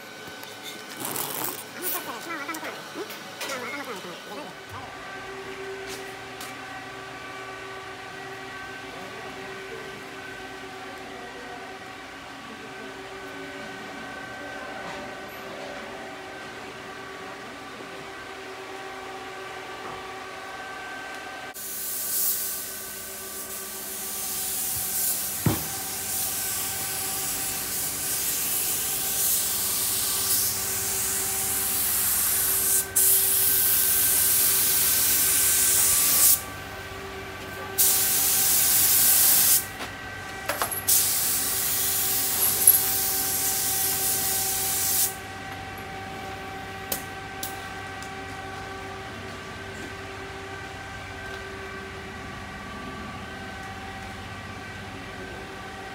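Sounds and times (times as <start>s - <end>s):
steady machine hum: 0.0s - 55.9s
paint spray gun hissing: 21.6s - 36.4s, 37.8s - 39.7s, 40.9s - 45.2s.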